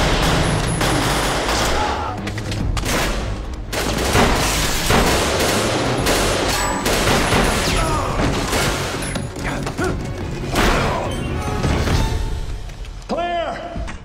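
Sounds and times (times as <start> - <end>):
gunshots: 0.0 - 2.2, 2.8 - 9.1
tense music score: 0.0 - 14.0.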